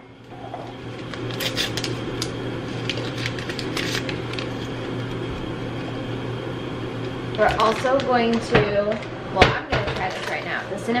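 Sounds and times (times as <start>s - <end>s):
foil packet crinkling: 1.0s - 5.2s, 7.4s - 8.4s.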